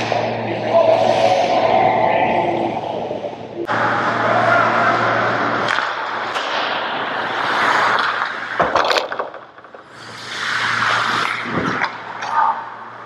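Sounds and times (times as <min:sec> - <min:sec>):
skate blades scraping ice: 0:05.6 - 0:09.0, 0:09.8 - 0:12.0.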